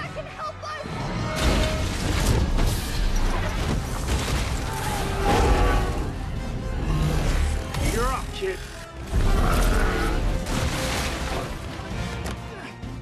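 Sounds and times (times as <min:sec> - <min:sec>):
film score music: 0:00.0 - 0:13.0
debris crashing: 0:01.3 - 0:05.8, 0:09.0 - 0:12.2.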